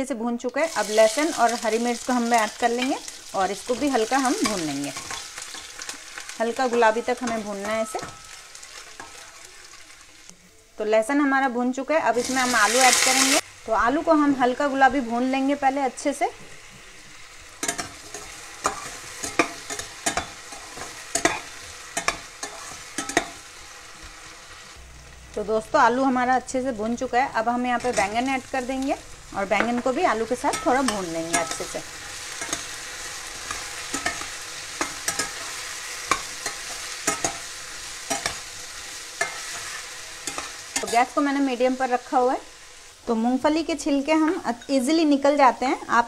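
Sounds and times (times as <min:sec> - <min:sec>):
potatoes sizzling in oil: 0:00.0 - 0:46.0
metal spatula scraping a pan: 0:17.2 - 0:24.4, 0:29.5 - 0:41.2.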